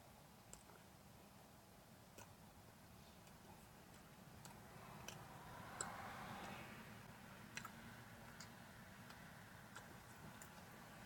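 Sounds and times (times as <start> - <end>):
faint low hum: 0.0 - 11.0
faint irregular clicks: 0.4 - 0.9, 2.1 - 6.6, 7.4 - 11.0.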